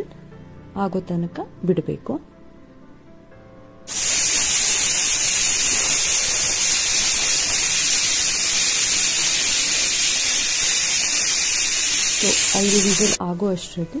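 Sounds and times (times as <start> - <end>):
pressure cooker hissing steam: 3.9 - 13.2.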